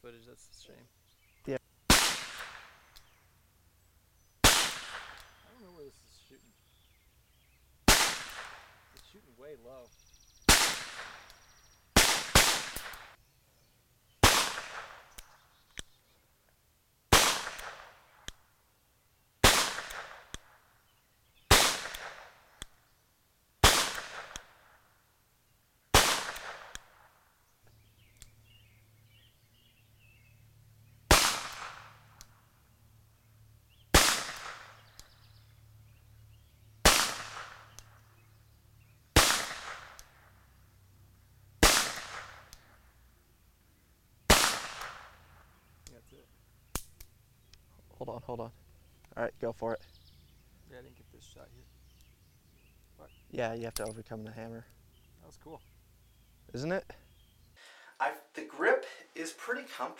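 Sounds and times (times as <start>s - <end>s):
revolver shots with echo: 4.4s - 5.4s, 23.6s - 24.5s, 31.1s - 32.3s, 34.0s - 35.2s, 36.8s - 38.0s, 39.2s - 40.2s, 41.6s - 42.7s, 44.3s - 45.2s.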